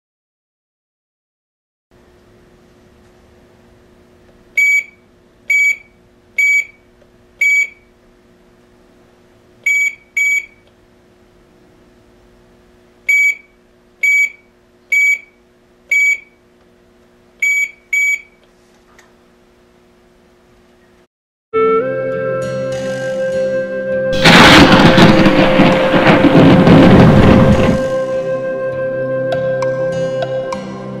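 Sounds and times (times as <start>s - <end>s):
keypad beeps: 4.6s - 6.8s, 7.4s - 7.8s, 9.7s - 10.6s, 13.1s - 14.4s, 15.0s - 15.3s, 15.9s - 16.3s, 17.4s - 18.4s.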